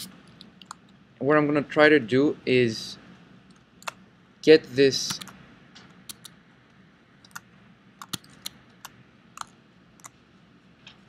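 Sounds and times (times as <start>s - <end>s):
faint room hiss: 0.0s - 11.0s
mouse and keyboard clicks: 6.1s - 6.3s, 8.0s - 10.2s.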